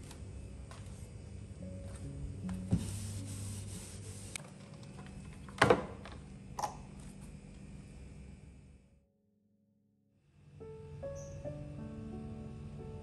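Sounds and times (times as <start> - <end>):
rubbing on cabinet top: 2.6 - 4.4.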